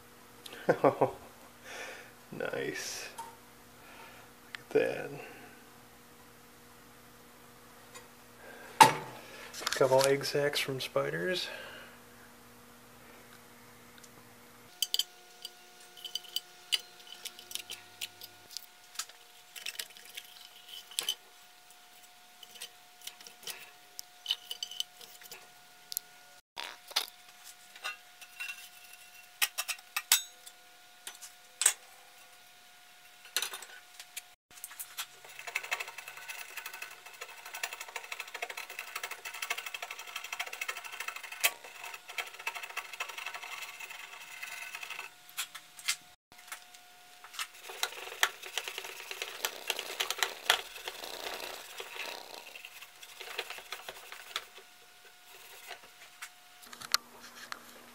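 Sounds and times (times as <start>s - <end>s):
scrubbing on metal: 47.5s - 55.9s.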